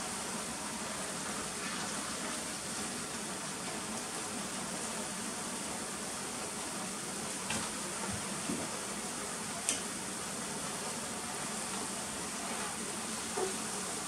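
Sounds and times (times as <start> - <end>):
pot simmering and bubbling: 0.0 - 14.0.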